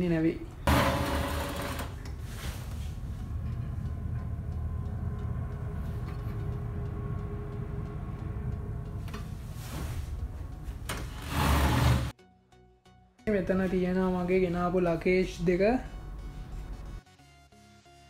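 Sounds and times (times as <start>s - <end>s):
ship machinery rumble: 0.5s - 12.2s
faint steady hum: 2.0s - 11.2s.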